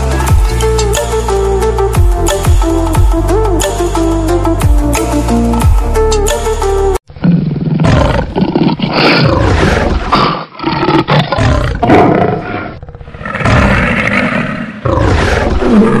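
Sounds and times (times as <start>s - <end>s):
electronic music: 0.0s - 7.0s.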